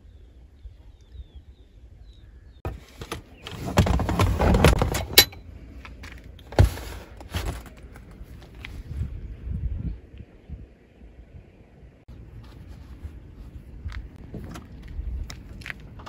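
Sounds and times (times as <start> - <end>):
metal table rattling and scraping: 2.7 - 5.4.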